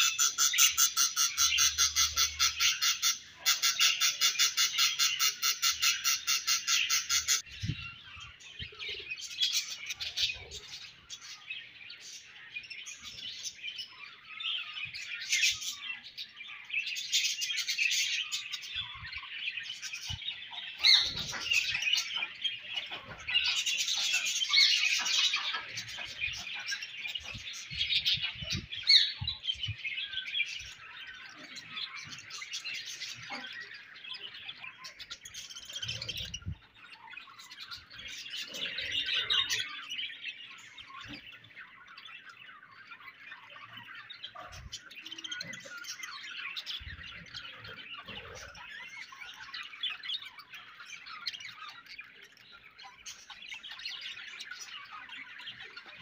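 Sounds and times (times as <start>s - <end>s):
budgerigars chirping and warbling: 0.0s - 56.0s.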